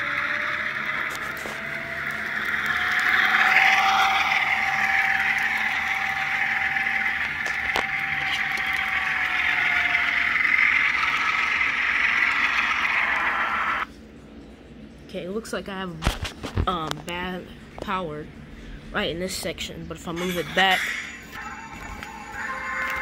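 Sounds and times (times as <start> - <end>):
diesel engine sound from small speaker: 0.0 - 13.9.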